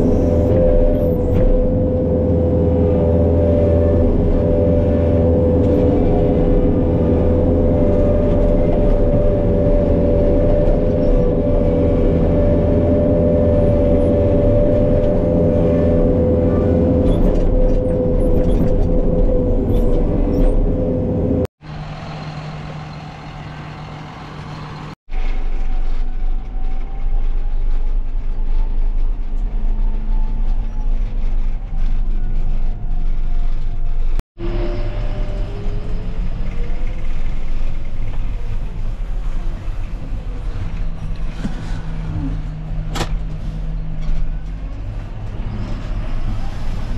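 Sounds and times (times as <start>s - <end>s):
farm machine engine running: 16.7s - 24.9s.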